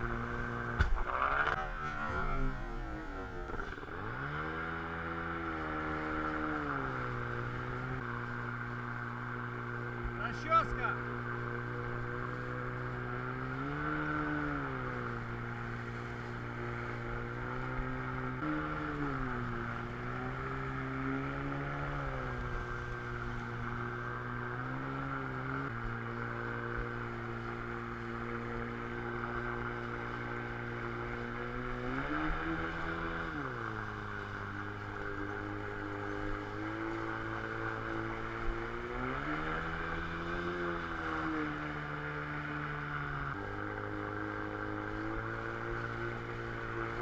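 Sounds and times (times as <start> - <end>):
jet boat motor revving: 0.0 - 47.0.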